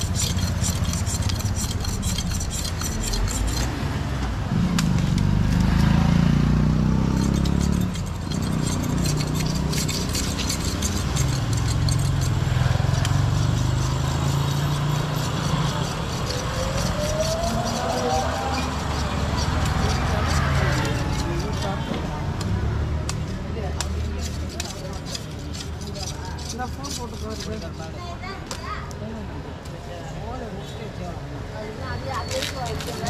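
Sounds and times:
light rapid clicking and scraping: 0:00.0 - 0:03.8, 0:07.0 - 0:28.0
road traffic passing: 0:00.0 - 0:33.0.

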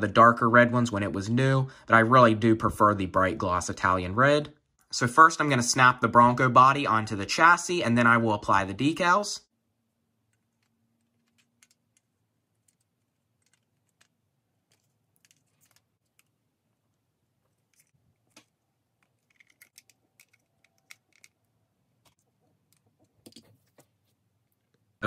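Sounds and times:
toy car parts clicking and scraping: 0:10.2 - 0:16.4, 0:17.4 - 0:23.6.

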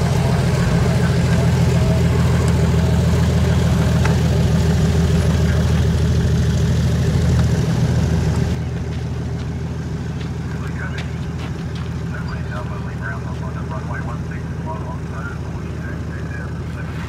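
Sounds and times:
propeller plane engine idling: 0:00.0 - 0:17.0.

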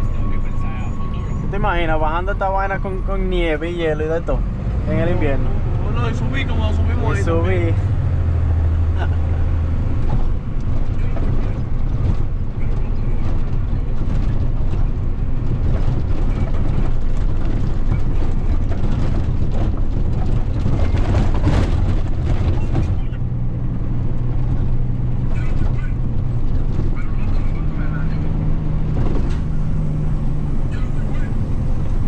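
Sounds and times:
road noise: 0:00.0 - 0:32.0
truck engine running: 0:00.0 - 0:32.0
rattles and knocks: 0:09.8 - 0:27.6, 0:28.2 - 0:30.5.

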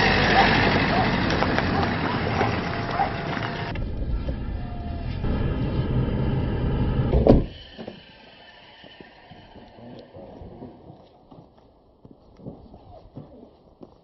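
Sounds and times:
car driving on dirt track: 0:00.0 - 0:11.1
faint outdoor background: 0:00.0 - 0:14.0.

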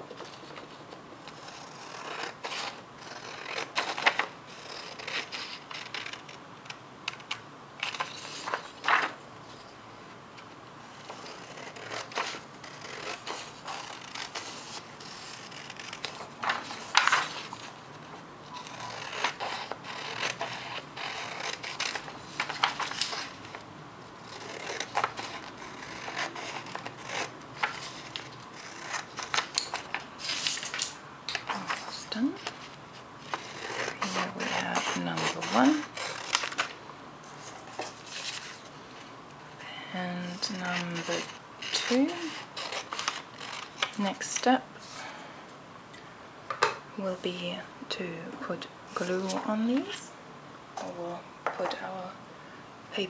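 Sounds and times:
scissors cutting paper: 0:01.3 - 0:06.4, 0:11.0 - 0:17.7, 0:18.6 - 0:23.6, 0:24.2 - 0:36.8, 0:40.3 - 0:44.6.

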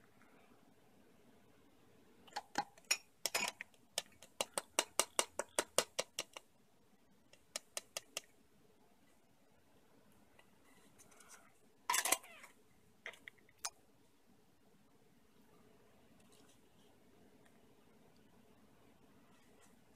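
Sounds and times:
metal spoon clinking against mug: 0:02.4 - 0:03.6.

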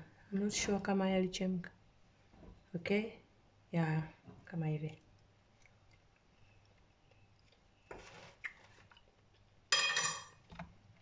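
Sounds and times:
fryer basket metallic clang: 0:09.7 - 0:10.4.

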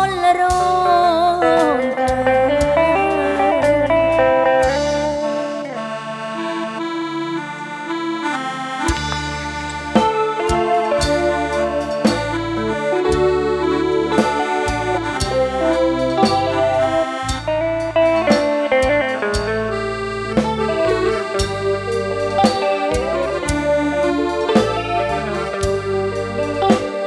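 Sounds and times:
bass line: 0:00.0 - 0:27.0
electric guitar melody: 0:00.0 - 0:27.0
keyboard melody: 0:00.0 - 0:27.0
steady drum beat: 0:08.9 - 0:27.0.

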